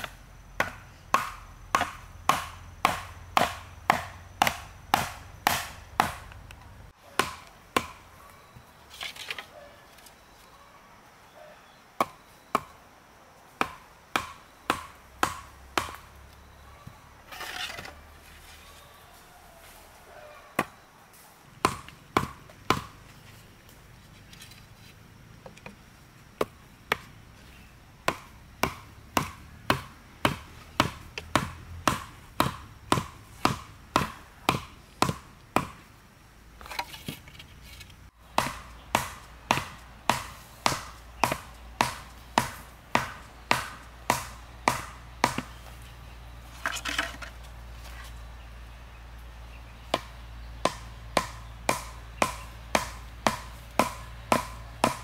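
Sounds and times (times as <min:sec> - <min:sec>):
wooden log knocking bamboo: 0:00.0 - 0:06.6, 0:28.1 - 0:35.8, 0:38.2 - 0:45.6, 0:46.6 - 0:47.4, 0:49.9 - 0:55.0.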